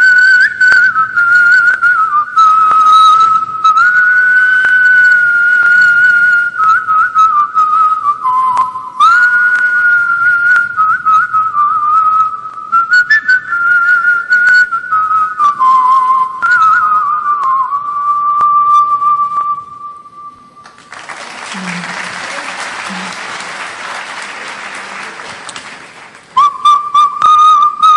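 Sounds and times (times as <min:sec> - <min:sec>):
man whistling a melody: 0:00.0 - 0:20.8, 0:26.4 - 0:27.9.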